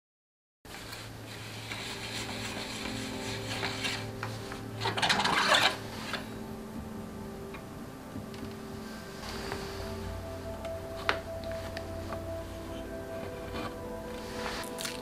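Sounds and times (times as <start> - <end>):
metal scrape: 0.7 - 6.4
metal rubbing and rasping: 0.8 - 6.4.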